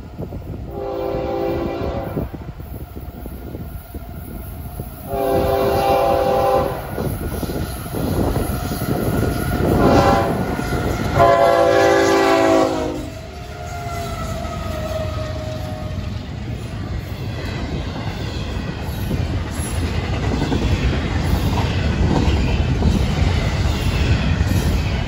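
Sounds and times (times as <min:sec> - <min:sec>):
train engines rumbling: 0:00.0 - 0:25.0
locomotive air horn blasts: 0:00.7 - 0:02.3, 0:05.1 - 0:06.9, 0:09.7 - 0:16.0.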